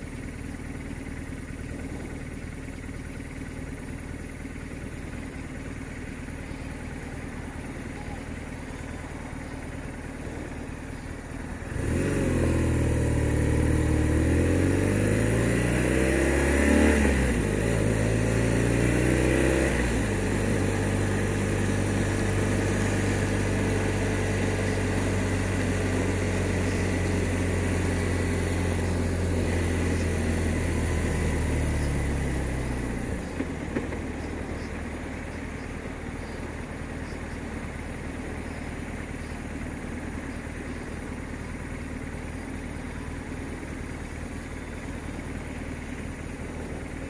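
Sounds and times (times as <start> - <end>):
motorcycle engine accelerating: 0.0 - 47.0.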